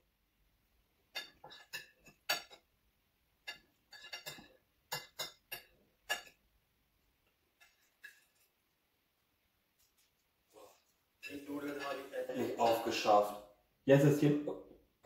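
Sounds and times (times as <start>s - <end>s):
cutlery clinking on a plate: 1.1s - 2.6s, 3.4s - 6.4s, 7.6s - 8.5s.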